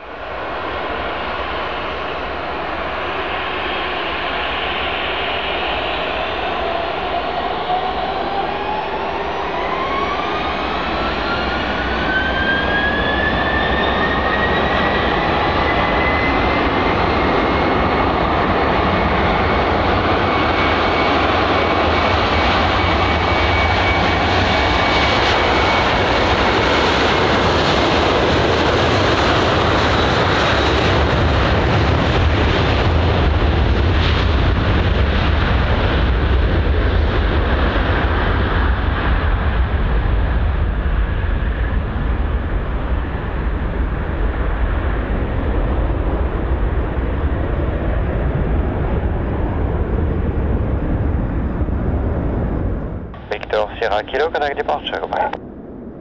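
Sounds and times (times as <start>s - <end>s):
jet engines spooling up: 0.3s - 26.4s.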